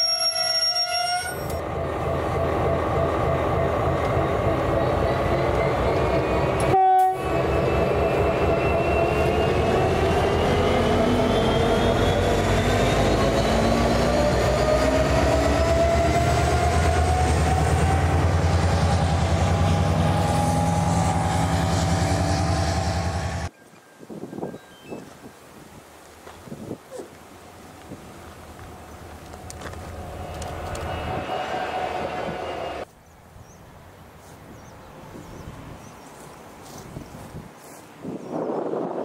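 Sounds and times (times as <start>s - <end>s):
diesel locomotive engine throb: 1.6s - 23.5s
train horn note: 6.6s - 7.7s.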